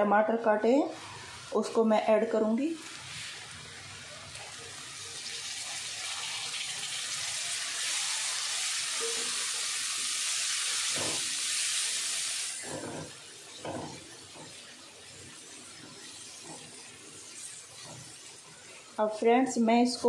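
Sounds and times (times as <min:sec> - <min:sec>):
tomatoes sizzling in hot oil: 0:00.0 - 0:20.0
spatula scraping pan: 0:12.5 - 0:14.8, 0:15.6 - 0:18.8.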